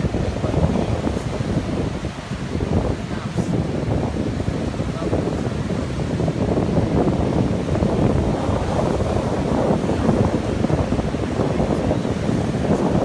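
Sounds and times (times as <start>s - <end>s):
ocean surf breaking: 0.0s - 13.0s
wind buffeting microphone: 0.0s - 13.0s.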